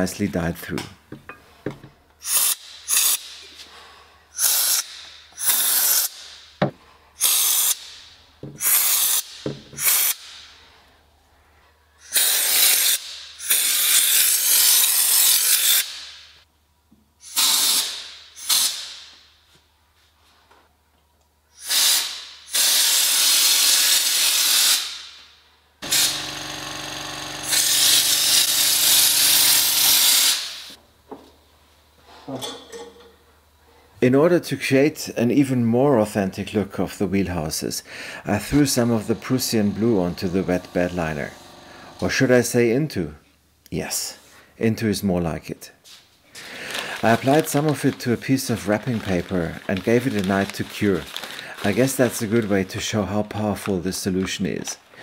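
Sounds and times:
spray gun hissing bursts: 2.2 - 3.3, 4.4 - 6.3, 7.2 - 7.9, 8.6 - 10.3, 21.6 - 25.0, 25.8 - 30.8, 38.2 - 42.1.

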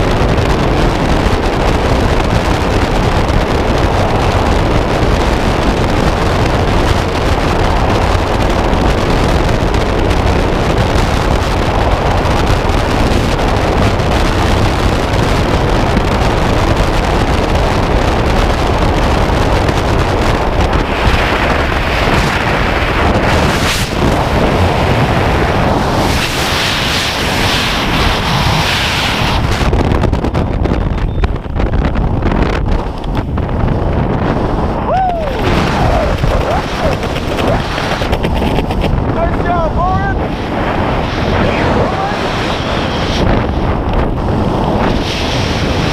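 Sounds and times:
wind rushing over microphone: 0.0 - 45.9.

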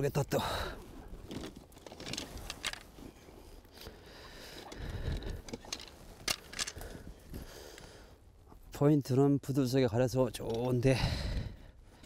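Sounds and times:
dry reeds rustling and crackling: 0.0 - 7.5.

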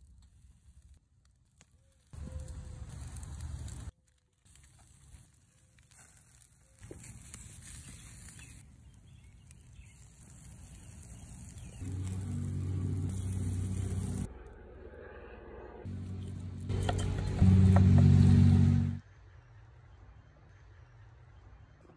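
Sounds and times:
food sizzling on a grill: 4.5 - 14.3
low hum: 11.8 - 21.9.

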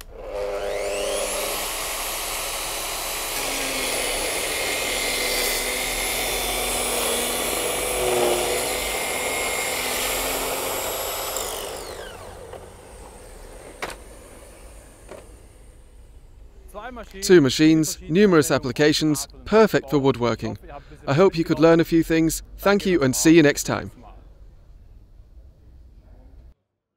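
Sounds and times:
circular saw cutting timber: 0.0 - 18.6.

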